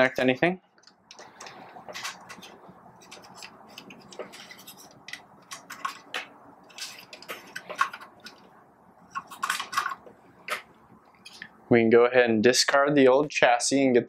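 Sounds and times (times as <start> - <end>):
plastic housing clicking and rattling: 1.1 - 8.5.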